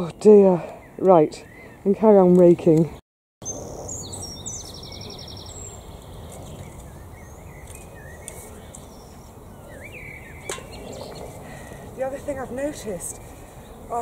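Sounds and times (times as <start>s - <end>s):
birds singing: 0.0s - 14.0s.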